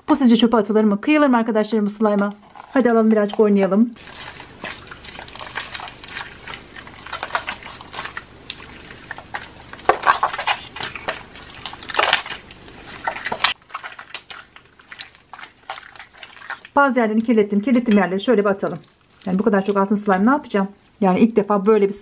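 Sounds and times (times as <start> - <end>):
slime squelching with wet clicks: 4.0 - 20.3.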